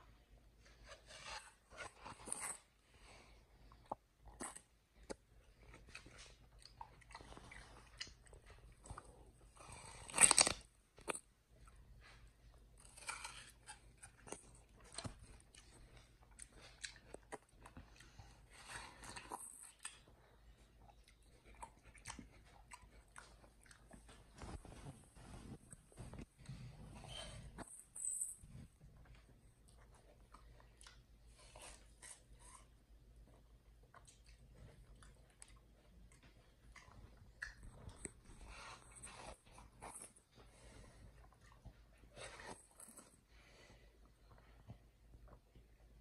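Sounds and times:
chimpanzee chewing watermelon: 0:11.6 - 0:24.6.

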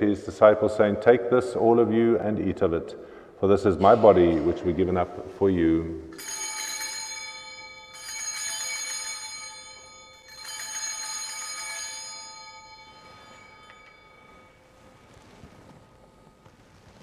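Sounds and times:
small bells ringing: 0:06.1 - 0:16.4.

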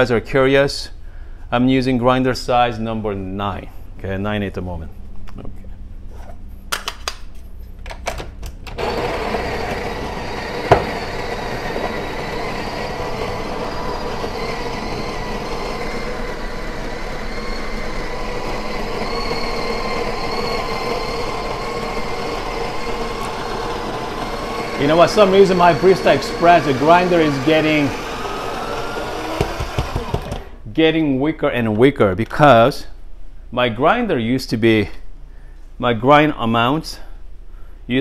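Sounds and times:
coffee grinder running: 0:08.7 - 0:30.6.

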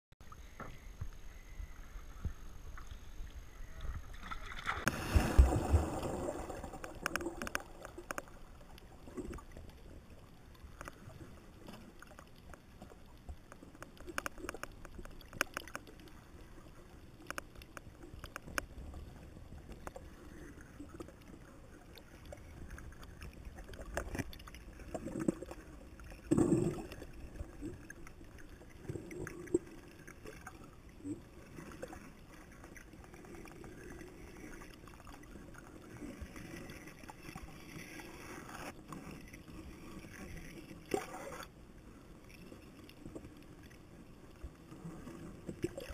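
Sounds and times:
low swells of water noise: 0:00.2 - 0:13.3
underwater clicks and crackles: 0:00.2 - 0:45.9
underwater wash: 0:00.2 - 0:45.9.

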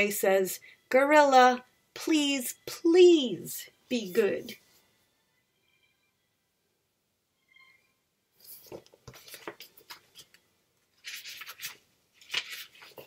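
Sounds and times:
book pages rustling: 0:08.4 - 0:13.0.

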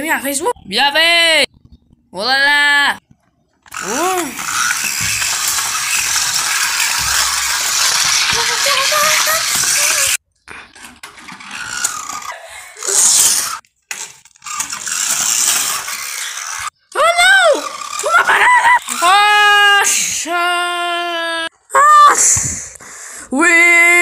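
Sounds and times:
toy car rolling on tiles: 0:03.5 - 0:19.6.

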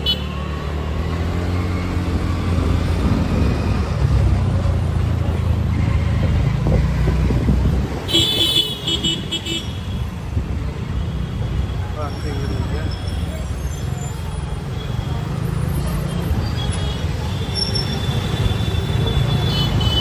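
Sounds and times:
traffic and engine rumble: 0:00.0 - 0:20.0
vehicle horn beeping: 0:08.1 - 0:10.0.

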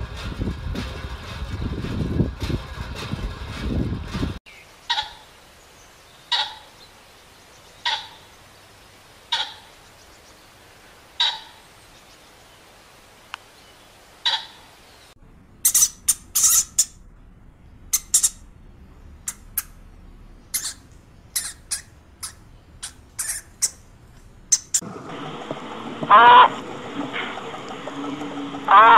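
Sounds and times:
pheasant calling: 0:04.5 - 0:10.4, 0:11.1 - 0:12.4, 0:13.6 - 0:15.0, 0:15.6 - 0:17.0, 0:17.8 - 0:18.5, 0:19.1 - 0:19.8, 0:20.4 - 0:24.8, 0:28.7 - 0:28.9
guinea pigs squeaking: 0:15.6 - 0:17.0, 0:17.9 - 0:18.5, 0:19.2 - 0:19.8, 0:20.5 - 0:23.9, 0:24.5 - 0:24.8.

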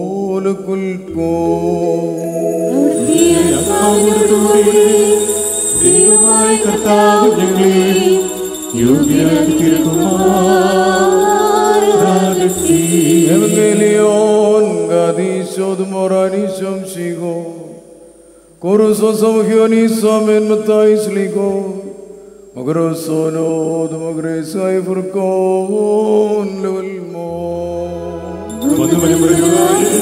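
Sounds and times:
liturgical chant singing: 0:00.0 - 0:17.0, 0:23.8 - 0:30.0
sustained instrumental accompaniment: 0:02.0 - 0:15.7, 0:27.7 - 0:30.0
small bells jingling: 0:02.2 - 0:15.6, 0:28.5 - 0:30.0.

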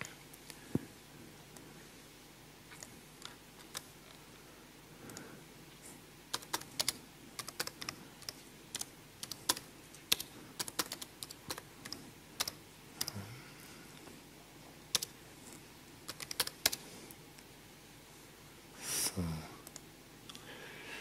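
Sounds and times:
keyboard typing clicks: 0:06.3 - 0:13.2, 0:14.9 - 0:15.2, 0:16.1 - 0:16.8.

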